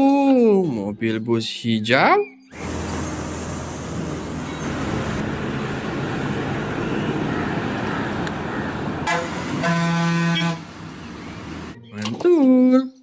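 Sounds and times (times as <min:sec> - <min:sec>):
road noise: 0:02.4 - 0:12.2
bus engine running: 0:02.5 - 0:11.8
bus horn blast: 0:09.0 - 0:10.9.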